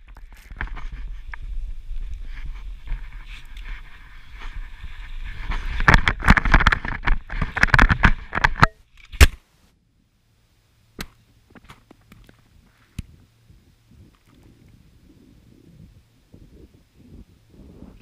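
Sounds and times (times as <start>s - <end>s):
branches scraping and snapping: 0.0s - 9.4s.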